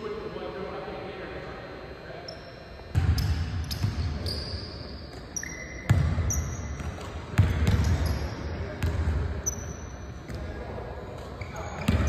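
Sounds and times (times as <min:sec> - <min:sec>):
sneaker squeaks: 0:02.2 - 0:12.0
basketball bouncing on wooden floor: 0:05.9 - 0:08.1.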